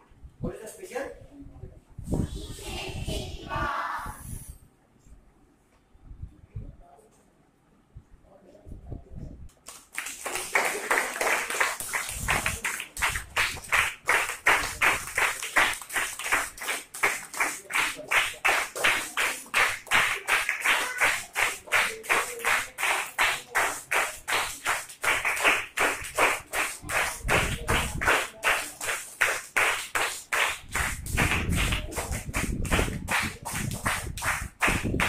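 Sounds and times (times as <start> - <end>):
children clapping in unison: 9.6 - 35.0.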